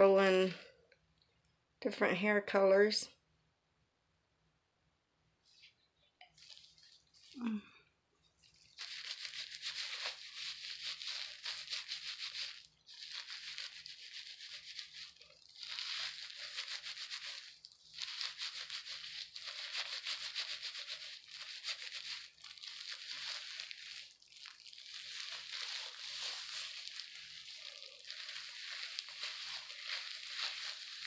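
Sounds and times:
gloved hands rubbing wet hair: 5.5 - 7.4, 8.4 - 31.0.

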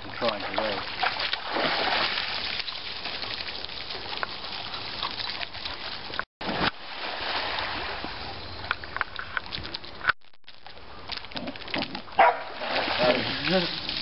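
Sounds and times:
pool water splashing: 0.0 - 8.7, 11.6 - 14.0.

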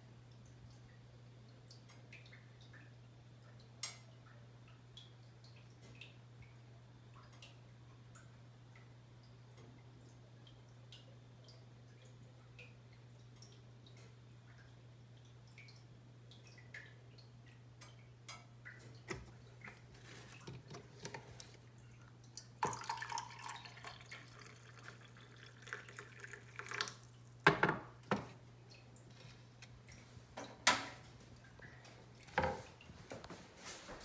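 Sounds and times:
ticks and drips: 0.1 - 34.0
coffee pouring into mug: 22.6 - 27.8.

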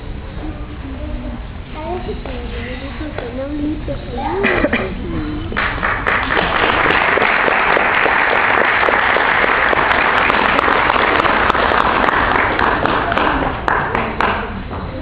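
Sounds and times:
audience applauding: 5.6 - 14.7.

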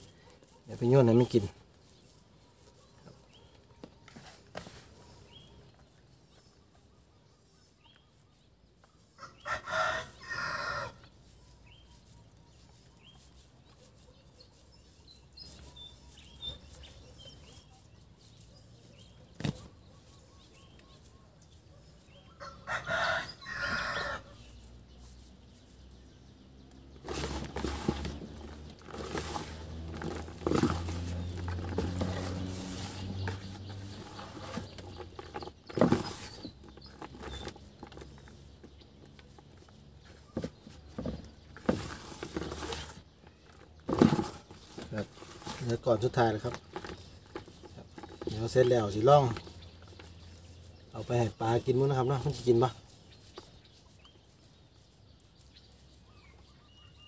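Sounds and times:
rooster crowing: 9.2 - 11.0, 22.4 - 24.4.

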